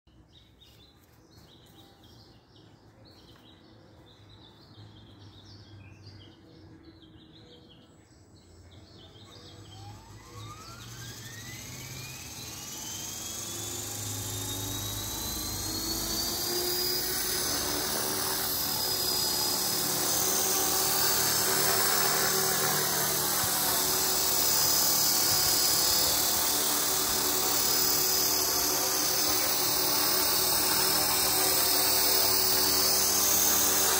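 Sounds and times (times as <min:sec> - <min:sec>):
helicopter rotor noise: 0:09.0 - 0:33.9
electric motor whine: 0:09.2 - 0:33.9.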